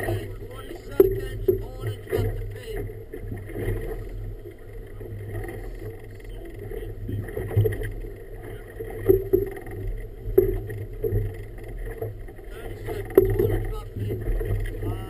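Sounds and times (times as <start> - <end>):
steady low rumble: 0.0 - 15.0
water slapping against boat hull: 0.0 - 15.0.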